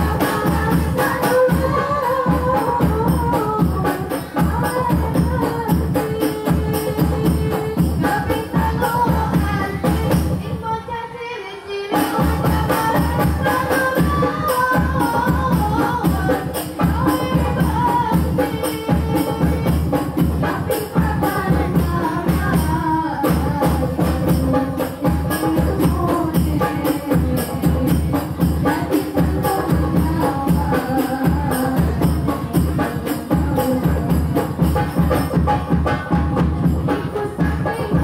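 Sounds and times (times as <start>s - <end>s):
frame drums beating: 0.0s - 10.6s, 12.0s - 38.0s
women singing into microphones: 0.0s - 38.0s.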